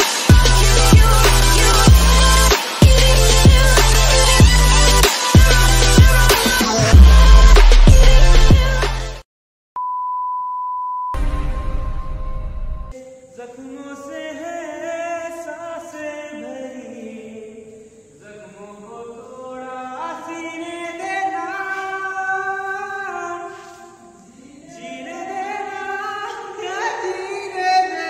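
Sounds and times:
man singing slow melody: 12.9 - 28.0.

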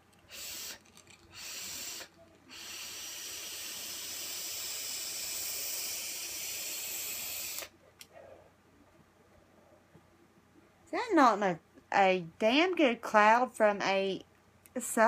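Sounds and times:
vape drag hiss: 0.2 - 7.7.

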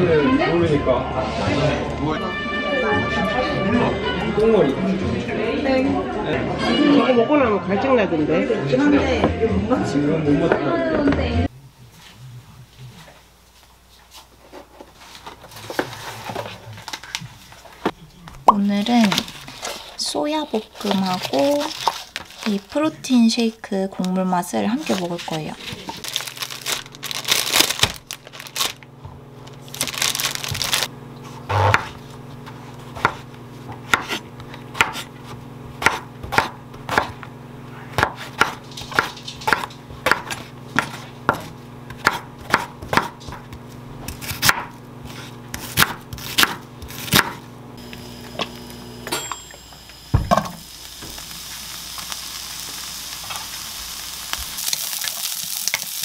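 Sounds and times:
onion sizzling in frying pan: 18.5 - 32.4, 44.8 - 56.0
plastic bag crinkling: 18.8 - 23.2, 24.0 - 30.9
knife chopping on wooden board: 31.5 - 32.0, 32.9 - 37.3, 37.9 - 47.4.

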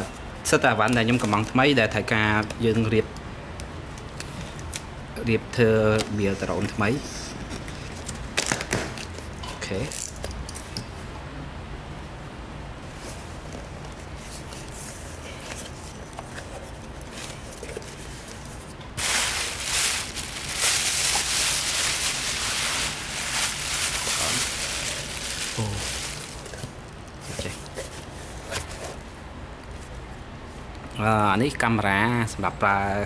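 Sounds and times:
plastic packaging crinkling: 17.0 - 27.8.

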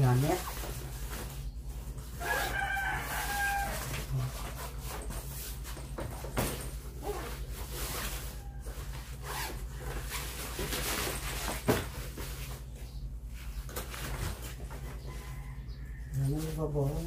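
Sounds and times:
fabric rustling: 0.0 - 15.3
zipper being drawn: 9.2 - 10.2.

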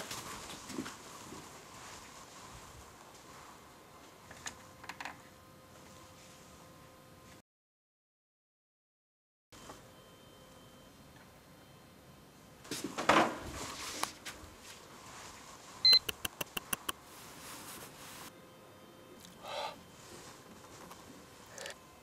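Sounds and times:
rustle: 0.0 - 3.7, 12.7 - 15.9, 16.6 - 18.3, 19.9 - 21.4
short high beep: 15.8 - 16.2
quick clicks: 15.9 - 17.0.

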